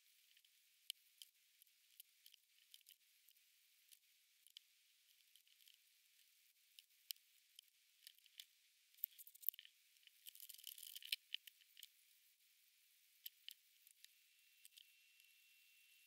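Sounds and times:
insect crunching food: 0:01.9 - 0:03.0, 0:07.1 - 0:11.9.

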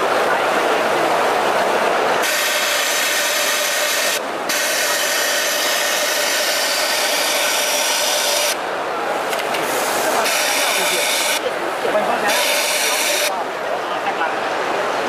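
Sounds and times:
overlock sewing machine whirring: 0:02.2 - 0:08.6
low background noise: 0:03.4 - 0:15.0.

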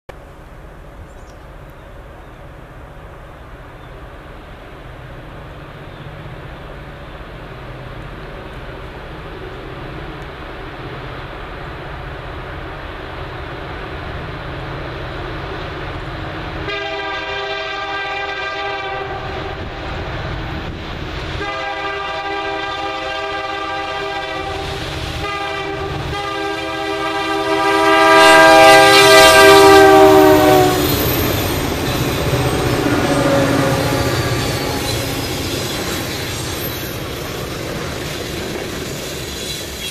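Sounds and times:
freight train rumbling past: 0:00.1 - 0:39.9
locomotive air horn blasts: 0:16.6 - 0:19.8, 0:21.4 - 0:31.2, 0:32.2 - 0:35.1.

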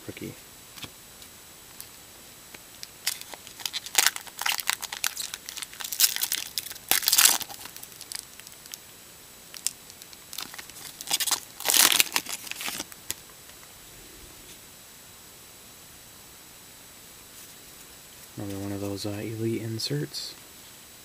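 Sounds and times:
foil wrapper crinkling and tearing: 0:02.8 - 0:08.8, 0:09.5 - 0:13.2.

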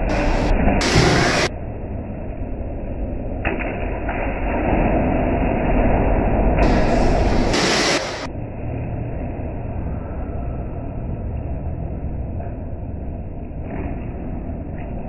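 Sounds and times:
indoor swimming pool din: 0:00.0 - 0:15.0
water splashing: 0:03.6 - 0:08.3.

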